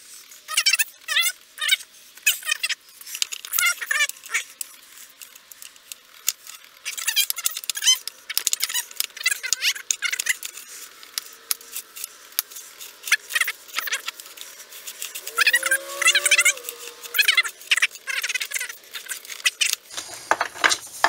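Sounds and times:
high-pitched chirping and squeaking: 0:06.5 - 0:10.8, 0:14.7 - 0:19.8.

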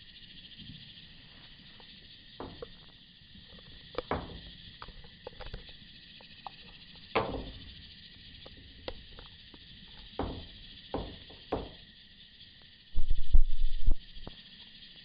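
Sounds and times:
insects trilling: 0:00.0 - 0:15.0
sharp knocks: 0:04.0 - 0:04.6, 0:07.2 - 0:07.8, 0:10.1 - 0:11.8.

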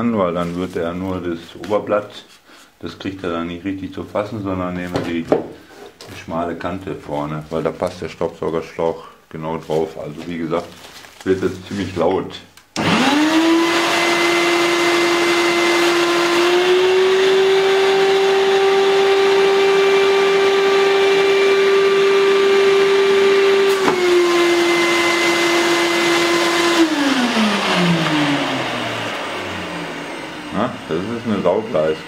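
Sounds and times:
shop vacuum whining: 0:12.8 - 0:32.0.

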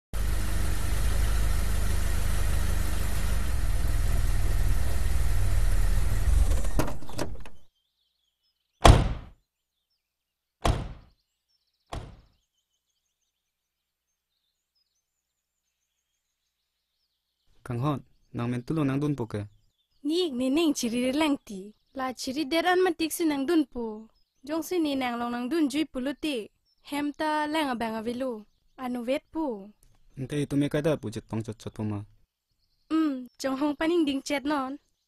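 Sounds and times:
engine low rumble: 0:00.2 - 0:07.6
car doors slamming: 0:08.8 - 0:09.3, 0:10.6 - 0:11.0.

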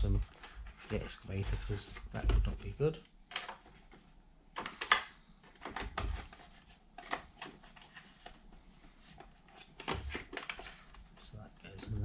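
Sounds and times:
plastic clicks and knocks: 0:01.9 - 0:06.4, 0:09.2 - 0:11.0.

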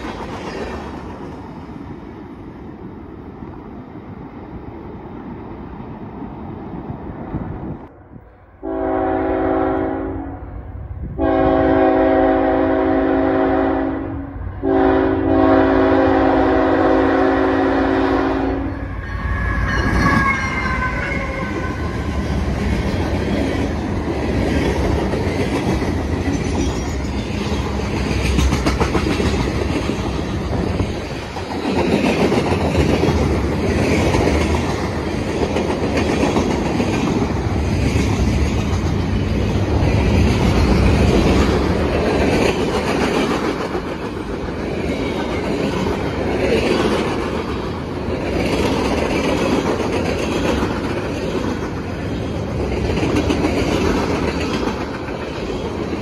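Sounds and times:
freight cars clickety-clack: 0:00.0 - 0:01.8, 0:19.8 - 0:56.0
train passing at speed: 0:00.0 - 0:56.0
locomotive air horn blasts: 0:08.6 - 0:10.6, 0:11.2 - 0:22.1.

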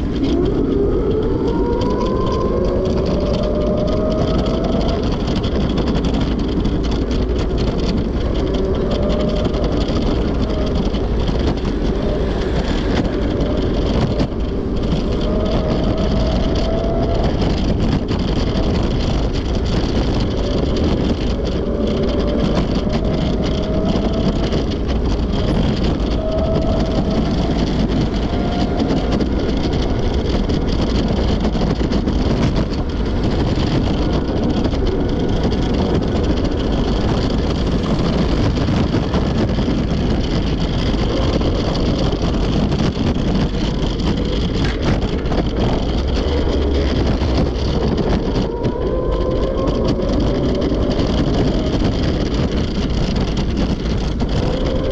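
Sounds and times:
road traffic: 0:00.0 - 0:54.9
wind on microphone: 0:00.0 - 0:54.9.

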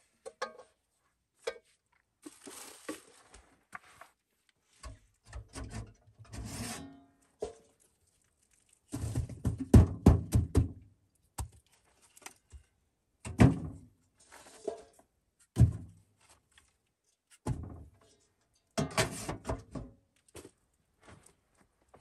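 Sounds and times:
dull thuds and knocks: 0:09.0 - 0:10.8.

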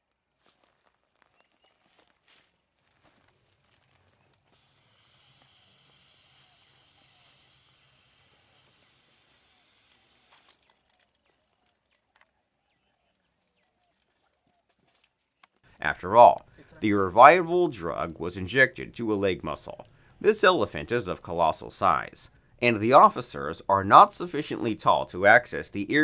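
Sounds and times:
aerosol spray hiss: 0:04.6 - 0:10.5.

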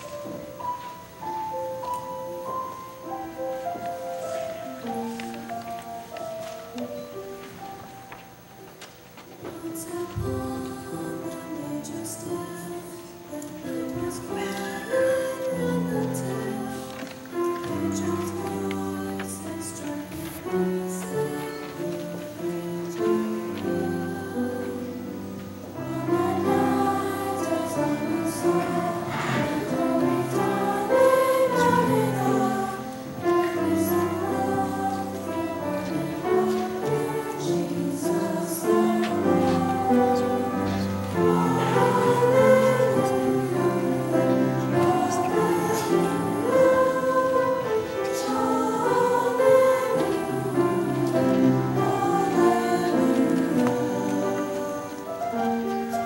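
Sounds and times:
children's choir singing: 0:00.0 - 0:56.0.

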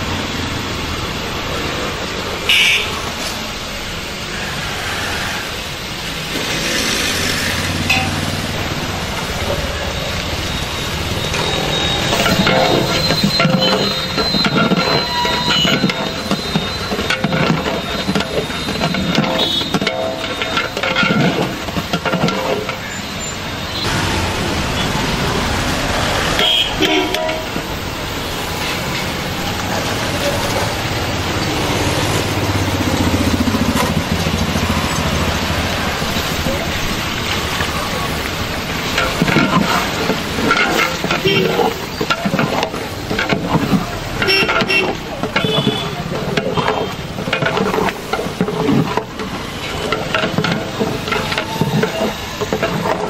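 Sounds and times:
stock boiling hard in pot: 0:00.0 - 0:53.0
street traffic noise: 0:00.0 - 0:53.0
vehicle horn toots: 0:02.5 - 0:03.0, 0:18.6 - 0:20.0, 0:26.3 - 0:27.6, 0:44.2 - 0:47.0
ladle clinking in metal pot: 0:07.9 - 0:08.3, 0:11.4 - 0:23.1, 0:38.9 - 0:53.0.

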